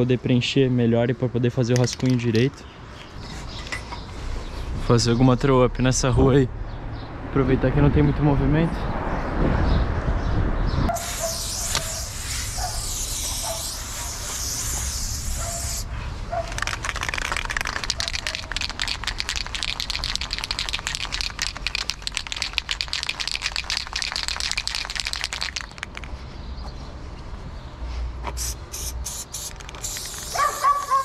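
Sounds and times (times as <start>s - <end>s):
spray can hissing: 10.9s - 15.9s, 16.5s - 26.0s, 28.3s - 31.0s
spray can ball rattling: 10.9s - 26.2s, 28.3s - 31.0s.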